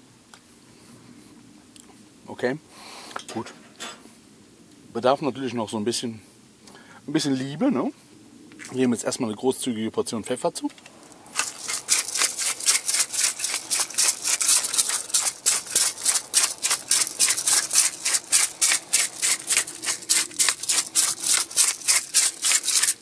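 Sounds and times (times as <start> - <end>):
pepper mill grinding: 11.0 - 23.0.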